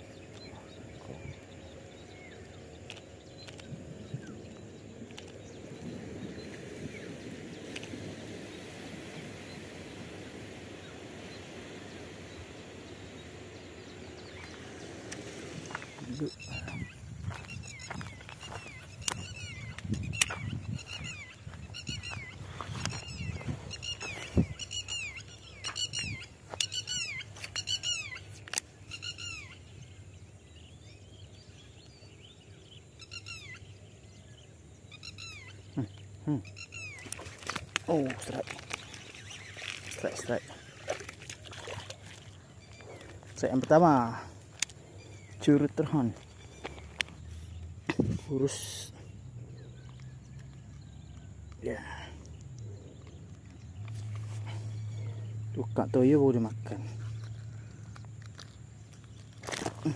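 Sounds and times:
wind rumble on microphone: 0.0s - 26.4s, 47.2s - 48.4s
faint bird chirps: 10.8s - 59.9s.

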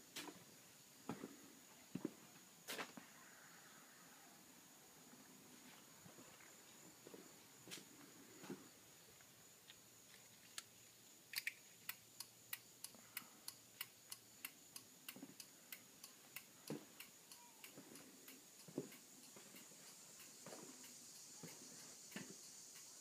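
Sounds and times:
turn signal relay ticking: 11.7s - 23.0s.

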